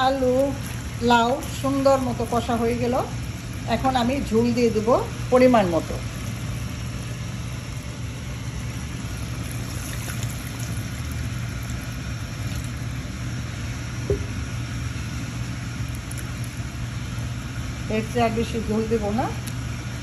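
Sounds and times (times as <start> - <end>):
water pouring into a pan: 0.0 - 2.6, 8.6 - 13.1
curry simmering and bubbling: 0.0 - 17.8
low hum: 6.0 - 17.5.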